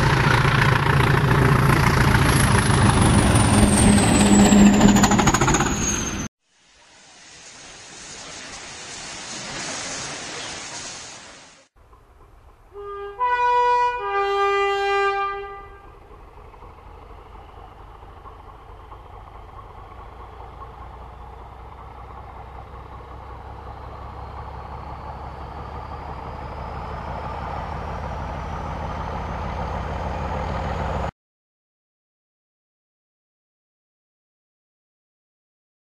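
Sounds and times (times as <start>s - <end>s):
diesel locomotive running: 0.0s - 11.2s, 11.8s - 31.1s
two-tone locomotive horn: 12.7s - 16.0s.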